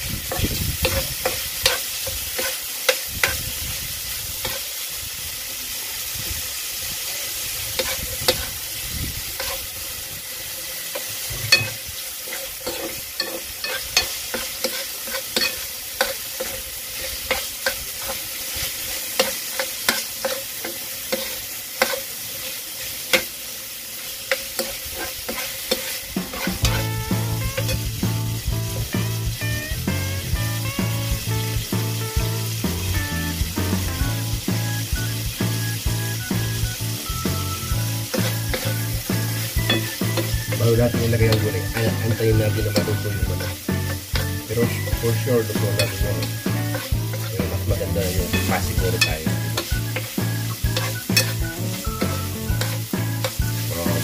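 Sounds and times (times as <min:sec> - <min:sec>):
chicken sizzling in a frying pan: 0:00.0 - 0:54.0
utensil scraping against pan: 0:00.3 - 0:03.5, 0:09.4 - 0:09.7, 0:11.0 - 0:23.3, 0:24.2 - 0:27.8, 0:38.1 - 0:54.0
background music: 0:26.5 - 0:54.0.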